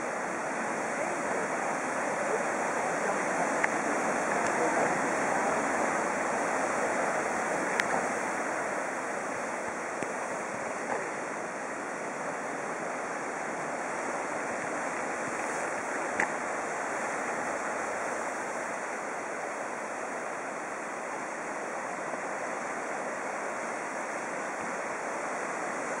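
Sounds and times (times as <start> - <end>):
surf breaking on pebble shore: 0.0 - 20.7.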